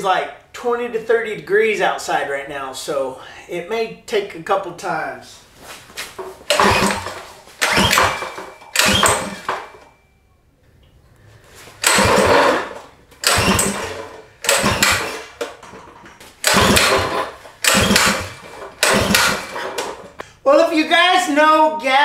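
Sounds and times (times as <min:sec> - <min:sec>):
engine pull-start cranking: 0:06.5 - 0:09.9, 0:11.8 - 0:20.2.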